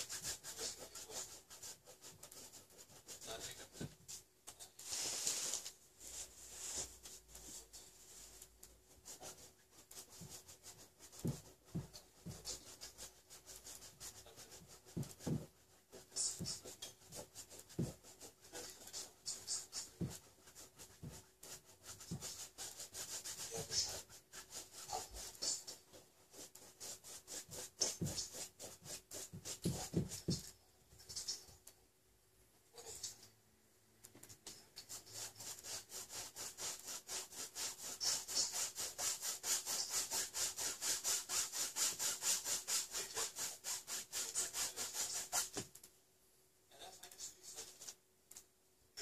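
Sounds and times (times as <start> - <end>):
paintbrush scrubbing on canvas: 0.0 - 31.5, 34.6 - 45.8.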